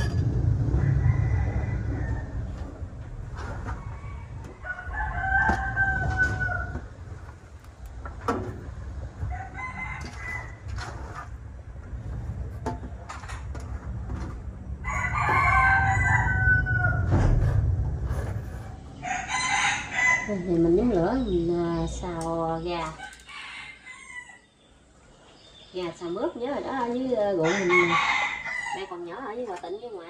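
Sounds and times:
steady low rumble: 0.0 - 22.8
rooster crowing: 0.8 - 2.6, 3.8 - 6.9, 9.3 - 10.6, 14.8 - 17.2, 19.0 - 20.4, 23.1 - 24.5, 27.4 - 29.0.

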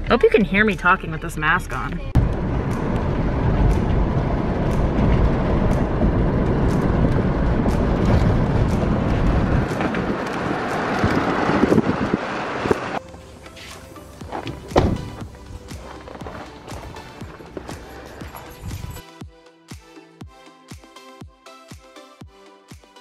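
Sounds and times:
road noise inside moving car: 0.0 - 19.0
wind noise: 2.2 - 13.0, 18.5 - 19.0.

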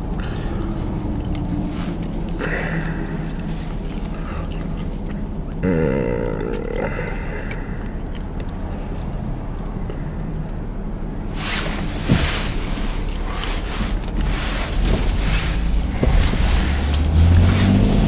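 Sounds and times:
engine and road rumble: 0.0 - 18.0
rush of air and road hiss: 11.2 - 18.0.

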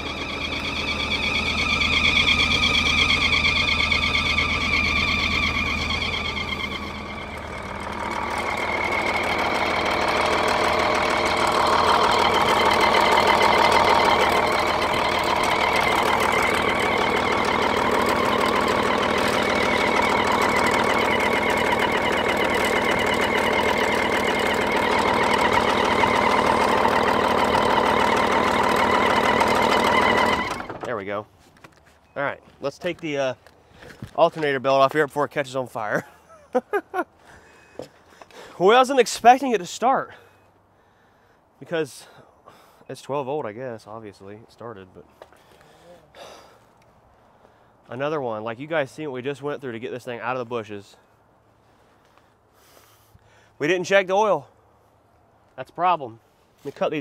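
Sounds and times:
high belt whine: 0.0 - 30.9
truck engine running: 0.0 - 31.1.

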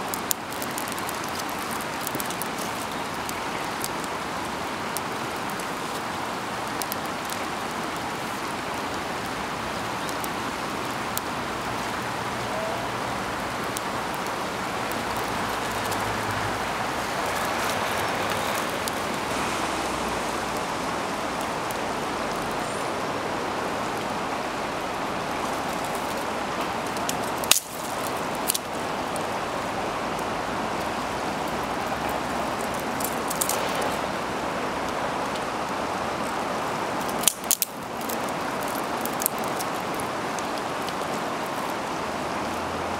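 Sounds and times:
river water rushing: 0.0 - 42.9
small fire crackling: 0.0 - 42.9.

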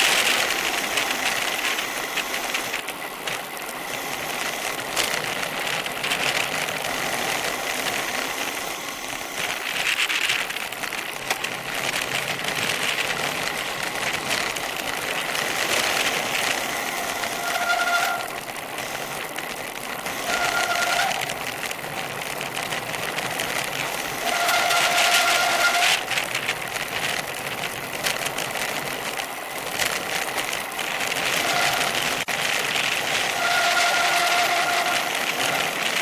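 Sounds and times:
bicycle tyres on road: 0.0 - 36.0
crackly rattle: 0.0 - 36.0
wind noise: 0.0 - 36.0
bicycle brakes squealing: 15.8 - 21.6, 23.8 - 26.4, 31.2 - 32.3, 32.9 - 36.0.

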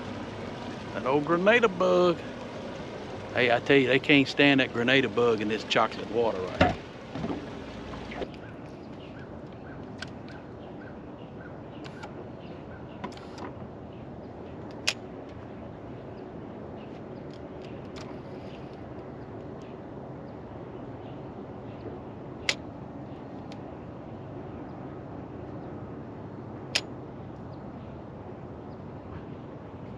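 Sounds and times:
electric trolling motor hum: 0.0 - 8.4.

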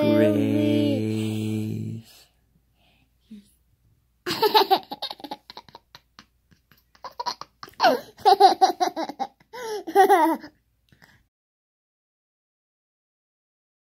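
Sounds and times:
toddler laughing: 4.3 - 6.2, 6.8 - 10.5.

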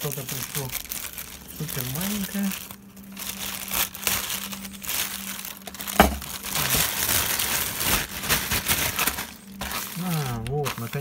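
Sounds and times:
plastic bags rustling: 0.0 - 11.0
plastic mailer crinkling: 0.0 - 11.0
sharp plastic crack: 5.7 - 11.0.

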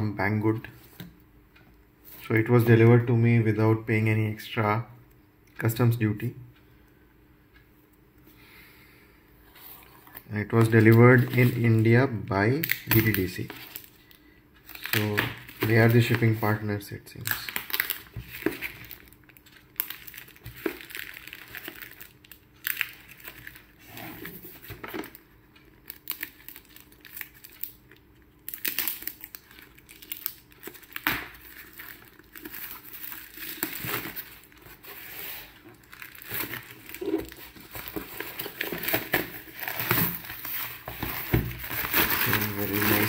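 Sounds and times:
packaging tearing and crinkling: 14.7 - 16.4, 17.2 - 23.7, 25.8 - 43.0.

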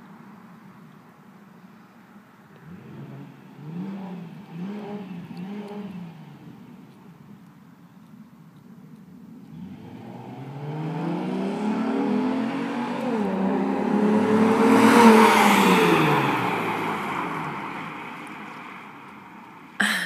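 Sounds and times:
car accelerating past: 9.5 - 18.6.

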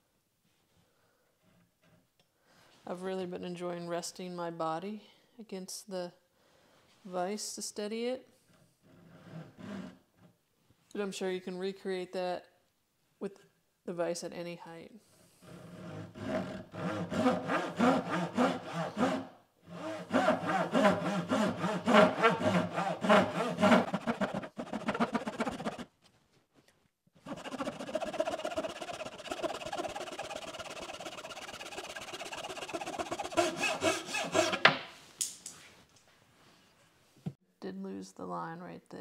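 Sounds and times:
handsaw cutting wood: 8.9 - 10.0, 15.4 - 25.9, 27.2 - 34.8.

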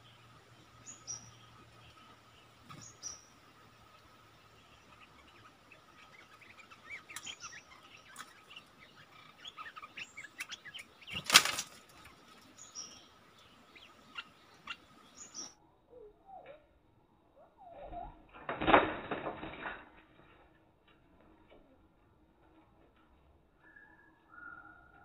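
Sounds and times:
birds chirping and twittering: 0.0 - 19.5, 20.1 - 25.0
wings fluttering: 2.6 - 12.6, 17.7 - 23.2.

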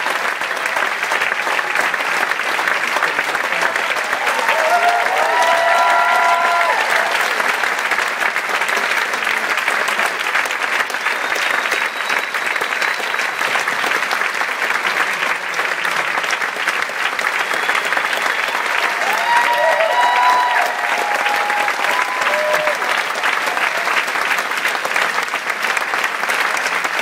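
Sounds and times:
audience applauding: 0.0 - 27.0
person whooping: 4.2 - 7.3, 18.8 - 23.0.

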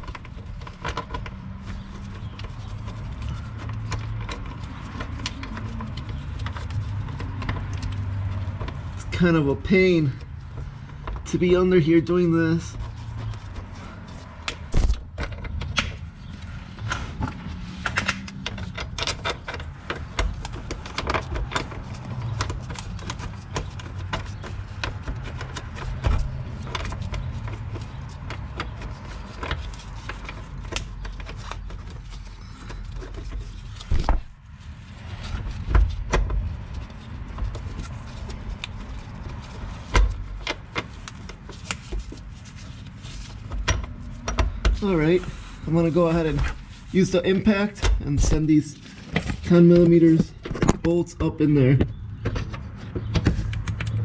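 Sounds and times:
scraping and handling noise: 0.0 - 54.0
metal clicks and knocks: 14.4 - 16.0, 17.2 - 31.9.

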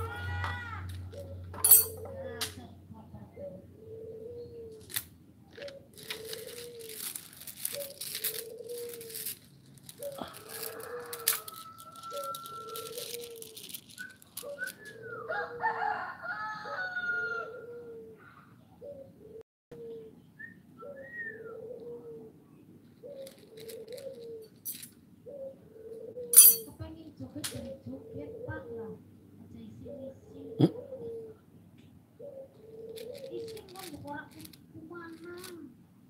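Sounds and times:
dove cooing: 1.0 - 31.6, 32.2 - 35.7
beads clicking and rattling: 6.0 - 14.8, 23.2 - 24.9, 33.0 - 35.6.

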